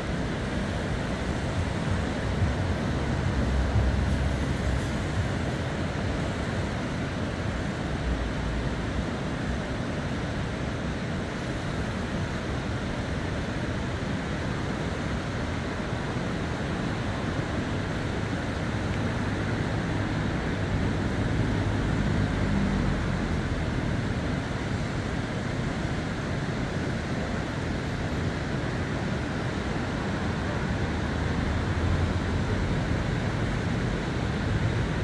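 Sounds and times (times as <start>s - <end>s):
river rushing: 0.0s - 35.0s
low rumble: 2.3s - 5.7s.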